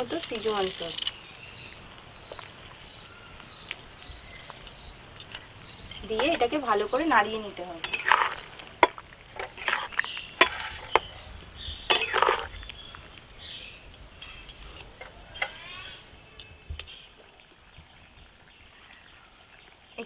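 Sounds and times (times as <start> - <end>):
ladle clinking and scraping pan: 7.8 - 11.1, 11.9 - 12.6
metal ladle stirring sauce: 7.8 - 11.1, 11.9 - 12.6.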